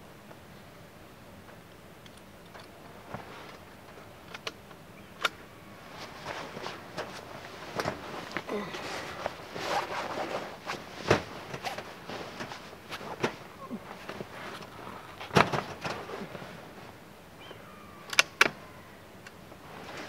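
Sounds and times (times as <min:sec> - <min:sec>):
handling rifle and gear: 0:01.5 - 0:20.0
clothing rustling: 0:05.8 - 0:17.1, 0:19.5 - 0:20.0.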